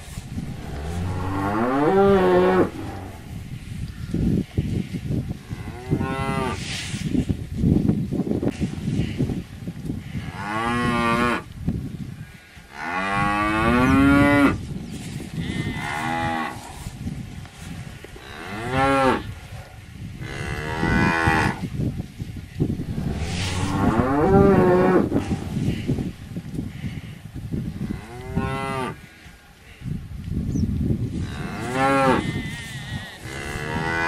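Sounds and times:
steady low rumble: 0.2 - 4.3, 22.6 - 26.8
cattle mooing: 0.5 - 3.6.

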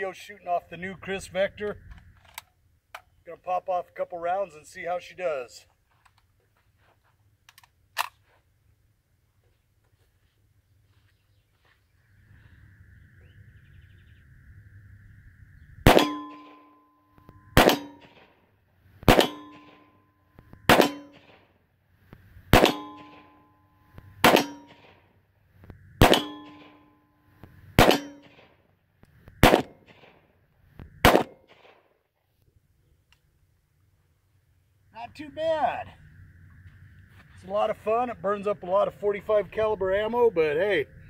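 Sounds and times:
gunshots: 15.9 - 16.6, 17.6 - 18.4, 19.0 - 19.9, 20.6 - 21.5, 22.5 - 23.4, 24.2 - 25.0, 26.0 - 26.8, 27.8 - 28.6, 29.4 - 30.2, 30.9 - 31.8
steel targets ringing: 15.9 - 18.2, 19.2 - 20.1, 20.7 - 21.3, 22.6 - 24.9, 26.0 - 27.1, 27.8 - 28.4.

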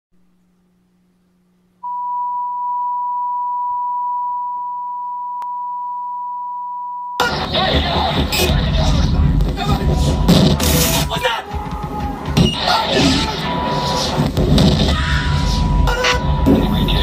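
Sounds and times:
loud music and noise: 7.2 - 17.0.

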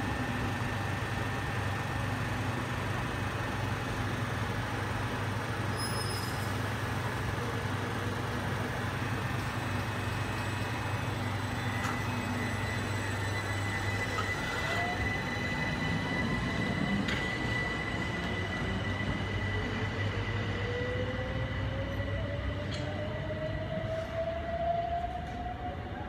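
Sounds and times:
train running on rails: 0.0 - 26.0
traction motor whine: 7.0 - 23.8.

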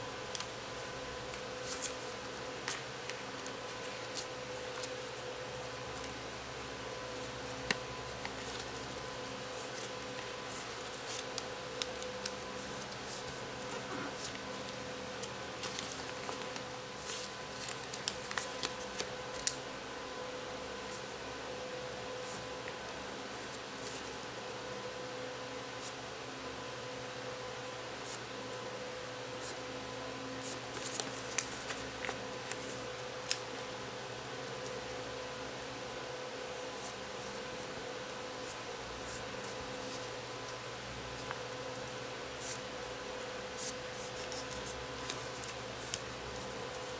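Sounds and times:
steady background hum: 0.0 - 46.9
paper being folded and creased: 1.3 - 6.2, 6.9 - 19.5, 30.4 - 33.6, 43.6 - 46.9.

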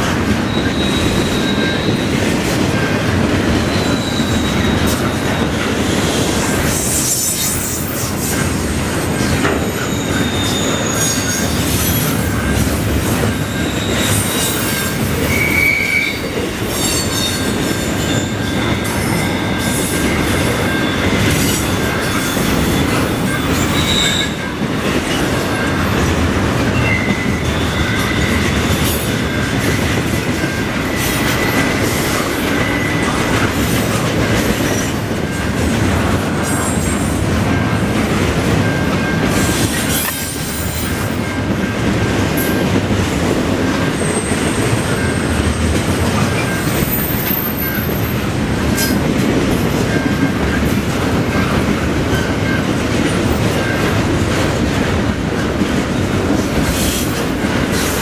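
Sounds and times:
freight train wheels rumbling: 0.0 - 58.0
high wheel squeals: 0.4 - 3.0, 3.6 - 8.5, 9.1 - 12.6, 13.2 - 26.0, 26.6 - 29.7, 30.4 - 33.8, 38.6 - 41.4, 46.3 - 48.3.

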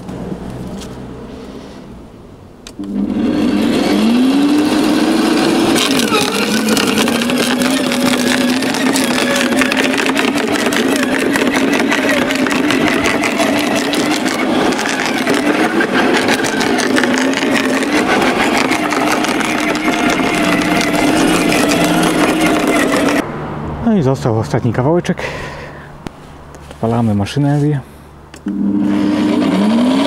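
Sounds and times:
garden shredder motor hum: 2.7 - 23.2, 28.4 - 30.0
wood crackling and crunching: 4.5 - 23.2.

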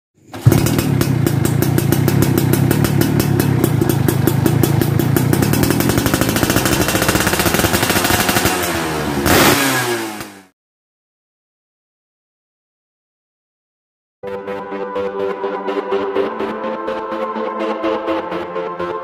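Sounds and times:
two-stroke engine idling: 0.3 - 9.5.

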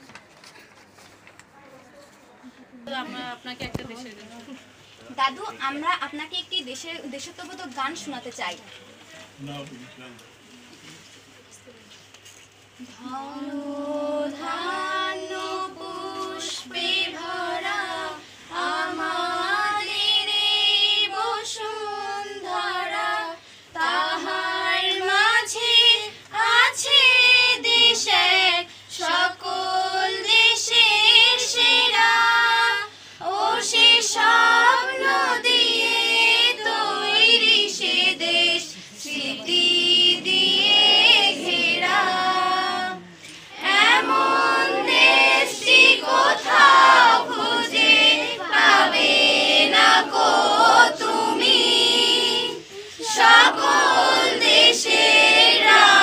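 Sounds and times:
children singing together: 24.1 - 43.0, 43.6 - 56.0.

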